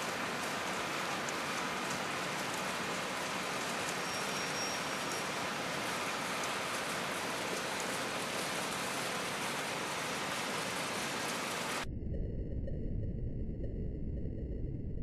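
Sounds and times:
heavy rain falling: 0:00.0 - 0:11.8.

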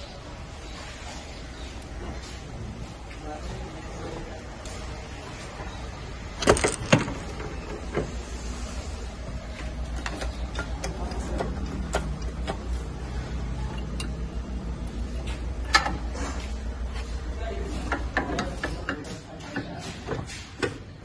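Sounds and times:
metal knocks and clicks of tools: 0:09.9 - 0:12.8, 0:15.2 - 0:16.5, 0:17.8 - 0:20.9.

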